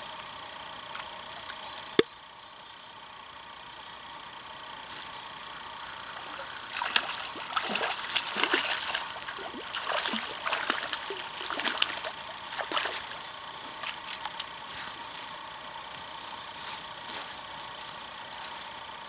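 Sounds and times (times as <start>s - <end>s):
fish splashing at water surface: 5.8s - 15.4s.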